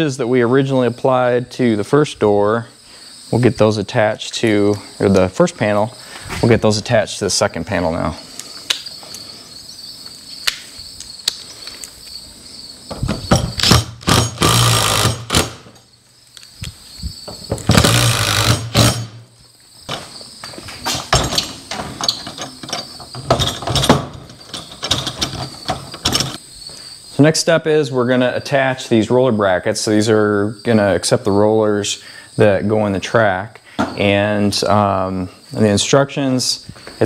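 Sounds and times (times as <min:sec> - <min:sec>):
crickets chirping: 0:00.0 - 0:37.0
drill driving screws into metal: 0:13.6 - 0:15.7, 0:17.7 - 0:19.2.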